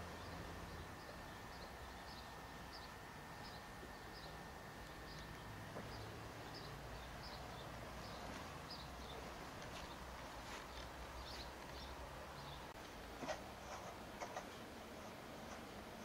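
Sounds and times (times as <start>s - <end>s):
small bird chirping: 0.0s - 12.8s.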